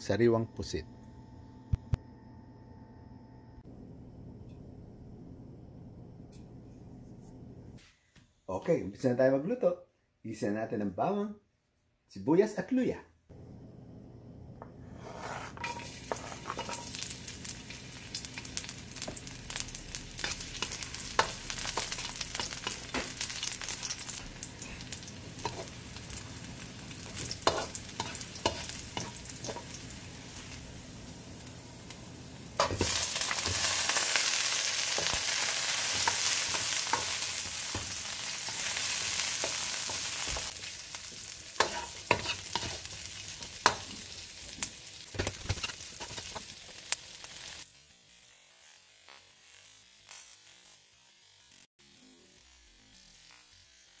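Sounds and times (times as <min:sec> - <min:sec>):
spatula scraping metal wok: 0:14.8 - 0:17.6, 0:18.2 - 0:30.6, 0:32.6 - 0:44.4, 0:45.2 - 0:46.6
garlic sizzling in hot oil: 0:14.9 - 0:54.0.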